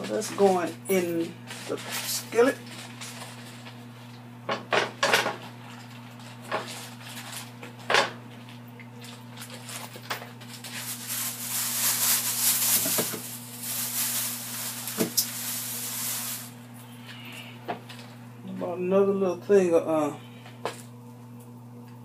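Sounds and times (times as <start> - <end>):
low electrical hum: 0.0 - 22.0
plastic bag rustling: 0.4 - 4.2, 5.6 - 7.8, 8.4 - 17.1
steady hiss: 11.2 - 16.6.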